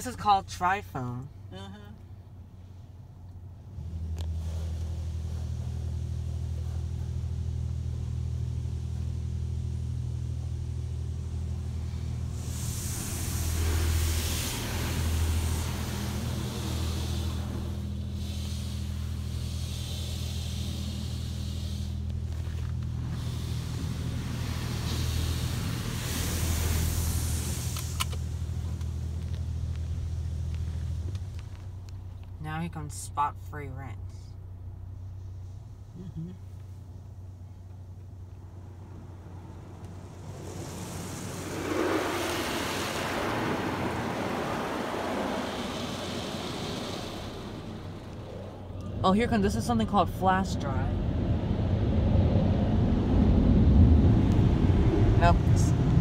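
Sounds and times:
steady low hum: 0.0s - 56.0s
water spray hissing on car: 3.9s - 9.0s, 11.4s - 31.6s, 38.9s - 48.5s.

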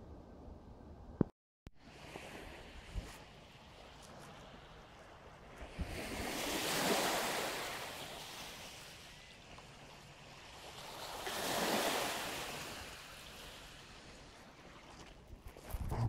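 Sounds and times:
waves washing onto shore: 1.8s - 15.2s.

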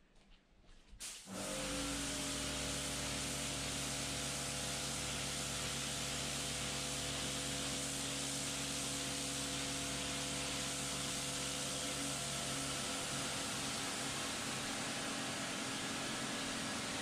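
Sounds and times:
water jet hissing: 1.2s - 17.0s
pressure washer motor humming: 1.3s - 17.0s.

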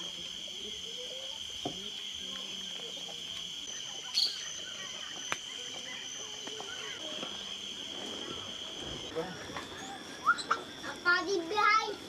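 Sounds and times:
high-pitched insect chorus: 0.0s - 12.0s.

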